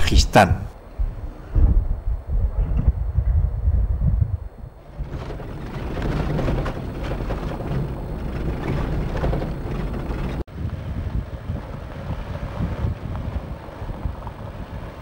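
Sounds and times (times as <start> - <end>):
wind buffeting: 0.8 - 15.0
vehicle engine and road noise: 4.7 - 15.0
loose rattling: 4.8 - 10.4.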